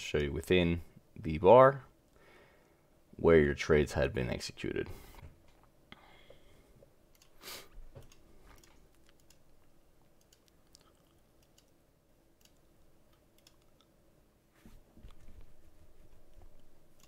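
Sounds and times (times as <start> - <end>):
faint scattered clicks: 8.0 - 11.8, 12.4 - 13.9.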